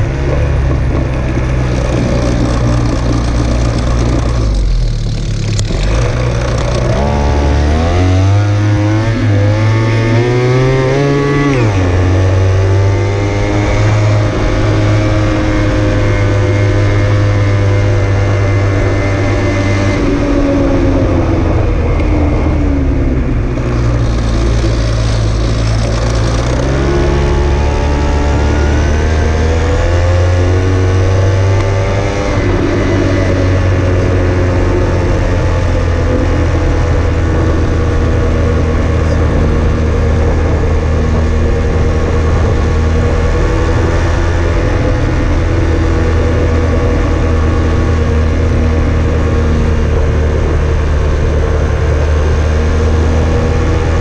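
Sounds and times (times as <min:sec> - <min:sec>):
road noise: 0:00.0 - 0:54.0
vehicle engine accelerating: 0:00.0 - 0:54.0
wind noise: 0:00.0 - 0:54.0.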